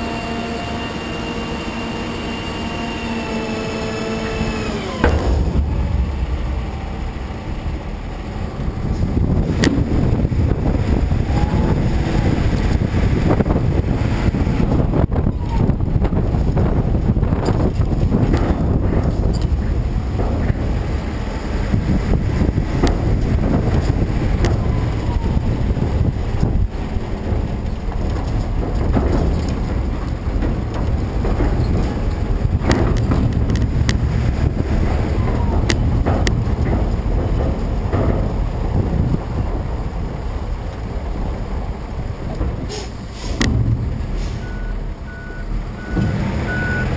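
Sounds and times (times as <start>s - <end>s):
truck rumbling: 0.0s - 46.9s
wind buffeting microphone: 0.0s - 46.9s
sharp knocks: 4.8s - 11.0s, 12.6s - 39.7s, 43.4s - 44.8s
sharp knock: 5.0s - 8.3s.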